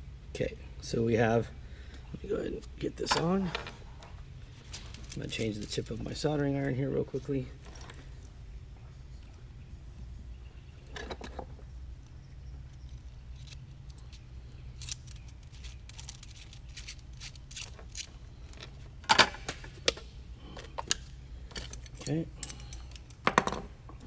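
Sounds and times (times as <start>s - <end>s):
steady low hum: 0.0s - 24.0s
metal parts clinking on workbench: 12.8s - 19.3s.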